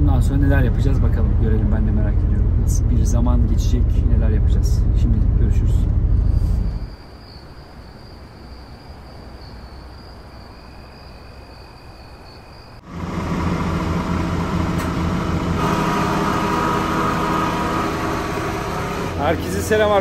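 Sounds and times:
refrigeration unit humming: 12.8s - 20.0s.

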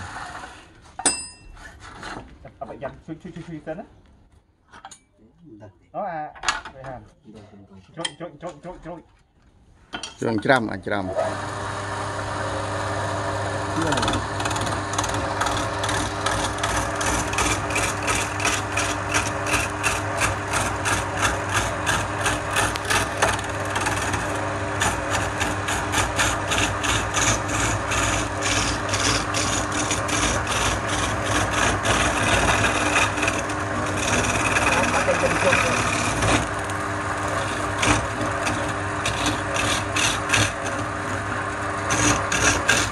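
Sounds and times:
turning tool scraping wood: 0.0s - 2.4s, 13.4s - 42.9s
wood lathe motor running: 11.0s - 42.9s.

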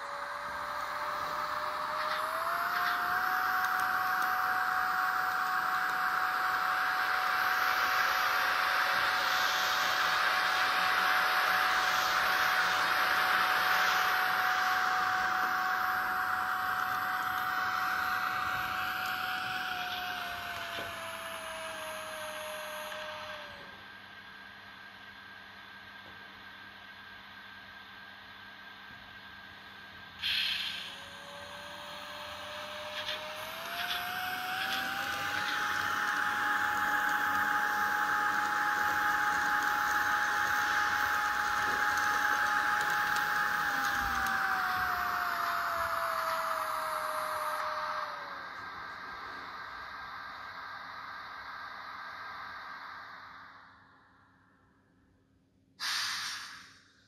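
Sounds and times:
electric motor whine: 0.0s - 24.9s, 30.2s - 54.0s
steady running hiss: 0.0s - 54.5s
speaker hiss: 48.3s - 54.3s, 55.8s - 57.0s.

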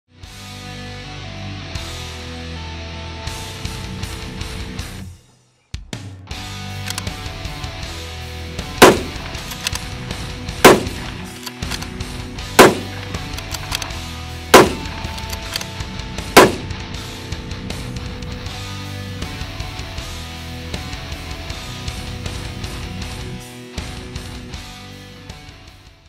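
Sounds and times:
background music: 0.1s - 26.0s
rifle shots: 6.9s - 7.1s, 8.8s - 9.9s, 10.6s - 11.9s, 12.6s - 15.7s, 16.4s - 16.8s.

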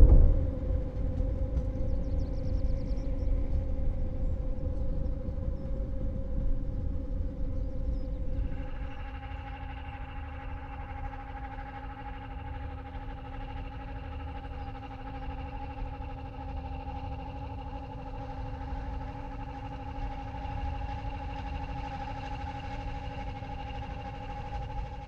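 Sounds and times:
low rumble: 0.0s - 11.6s.

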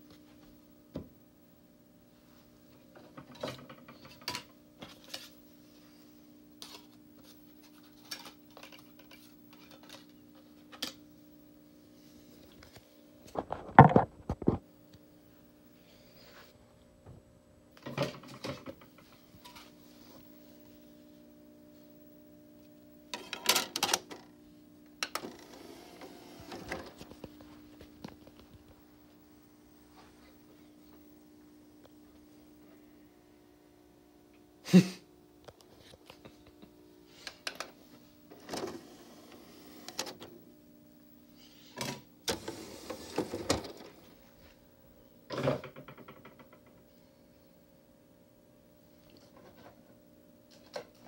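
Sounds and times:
faint steady hum: 0.0s - 51.0s
disc tray clicks and rattles: 23.1s - 24.3s.

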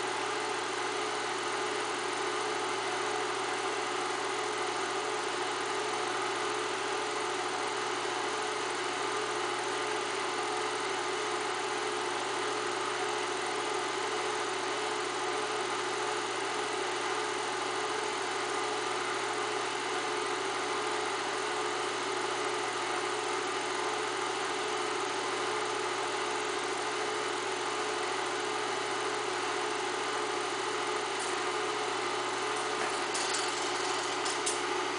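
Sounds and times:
film projector whirring: 0.0s - 34.9s.

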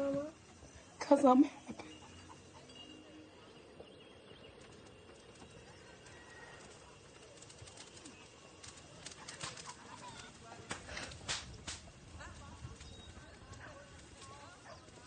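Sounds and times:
faint high chirps: 0.0s - 10.3s.

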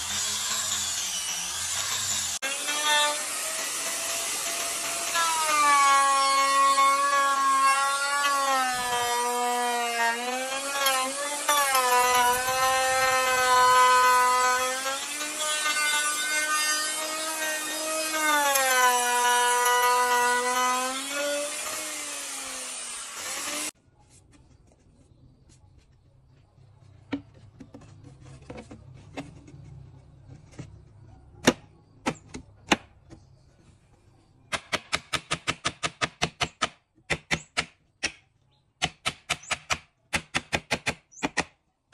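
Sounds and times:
electric router cutting wood: 0.0s - 23.7s.

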